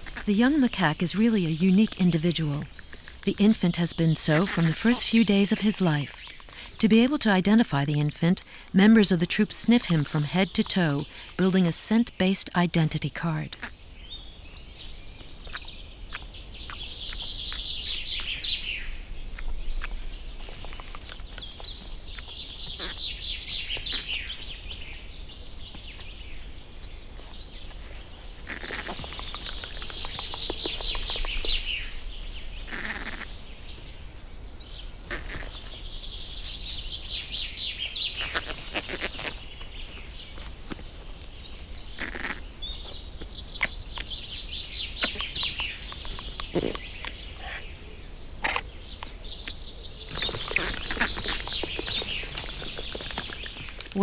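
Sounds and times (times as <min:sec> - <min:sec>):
songbird trilling: 0:00.0 - 0:08.3, 0:15.4 - 0:24.8, 0:28.4 - 0:32.0, 0:32.6 - 0:33.5, 0:41.8 - 0:47.7, 0:48.4 - 0:54.0
quiet forest ambience: 0:00.0 - 0:54.0.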